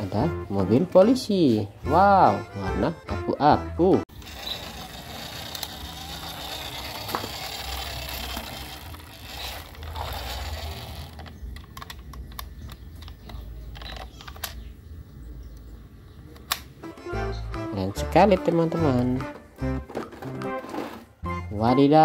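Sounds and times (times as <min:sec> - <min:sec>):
toy scraping on concrete: 0:04.1 - 0:14.6, 0:20.0 - 0:21.2
sharp plastic clicks: 0:04.2 - 0:14.7, 0:16.3 - 0:16.8.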